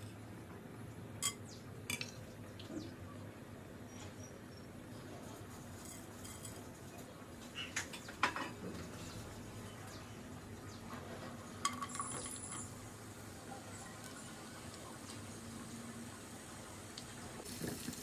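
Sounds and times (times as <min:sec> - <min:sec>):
faint steady hiss: 0:12.8 - 0:18.0.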